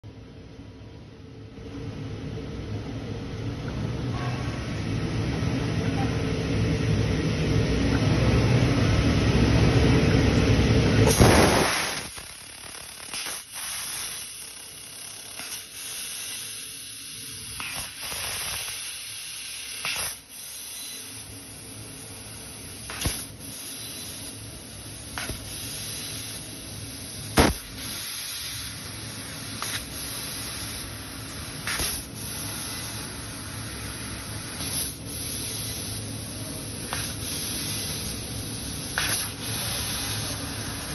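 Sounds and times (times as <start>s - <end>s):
loud low rumble: 1.6s - 11.1s
hiss of assist gas: 11.1s - 14.6s, 15.2s - 40.9s
pops and crackles: 11.2s - 14.1s
sharp crack: 27.4s - 27.7s.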